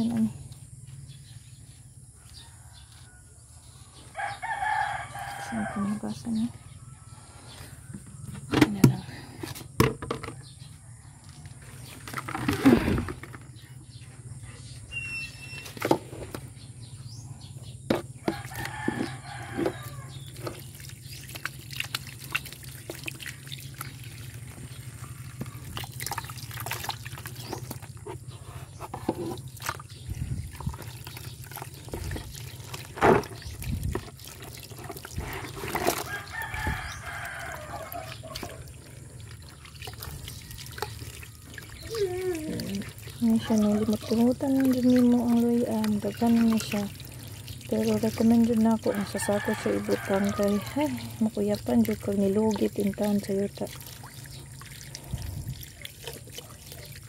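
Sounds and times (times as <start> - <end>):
rooster crowing: 2.2 - 6.1, 18.2 - 20.2, 36.0 - 38.6, 48.8 - 51.0
knocks and splashes: 8.2 - 10.4, 11.9 - 13.6, 17.9 - 57.0
water running from a hose: 11.6 - 13.7, 14.9 - 16.5, 17.9 - 57.0.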